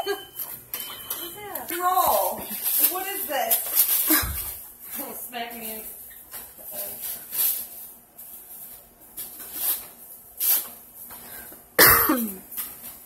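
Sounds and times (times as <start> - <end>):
plastic cling film crinkling: 1.2 - 11.2.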